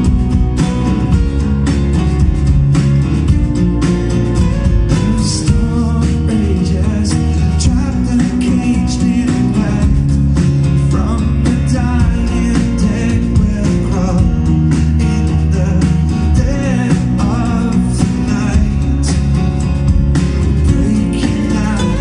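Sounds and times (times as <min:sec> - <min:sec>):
bass guitar: 0:00.0 - 0:22.0
drum kit: 0:00.0 - 0:22.0
strummed acoustic guitars: 0:00.0 - 0:22.0
man singing: 0:04.9 - 0:19.7, 0:20.6 - 0:22.0.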